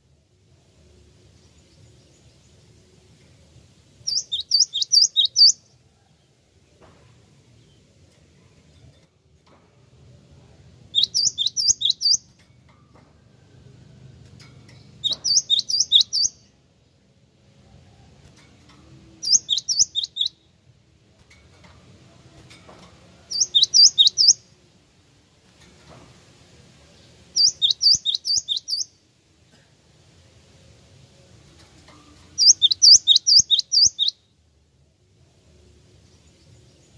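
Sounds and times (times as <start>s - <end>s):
bird singing high notes: 4.1s - 5.6s, 27.4s - 28.9s.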